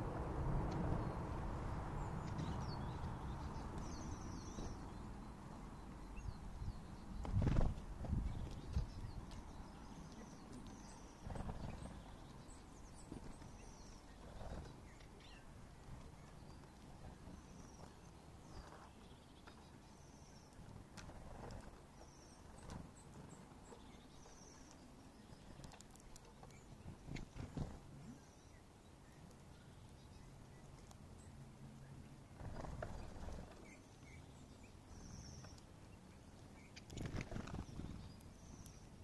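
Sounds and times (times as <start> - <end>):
low rumble: 0.0 - 3.7
songbirds chattering: 1.0 - 39.0.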